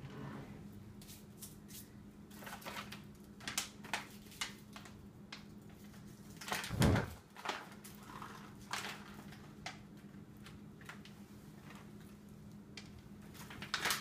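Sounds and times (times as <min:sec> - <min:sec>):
wooden drawer sliding open: 0:06.7 - 0:07.2.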